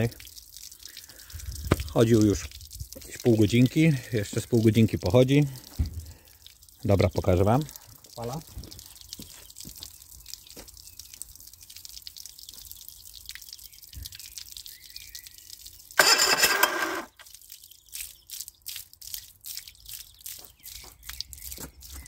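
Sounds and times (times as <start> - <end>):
water dripping: 0.0 - 16.2, 16.8 - 22.0
outboard engine starter cranking: 16.0 - 17.1.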